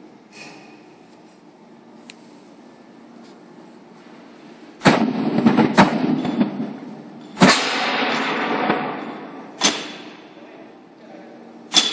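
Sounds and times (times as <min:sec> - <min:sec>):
sharp echoing bangs: 0:04.8 - 0:10.4.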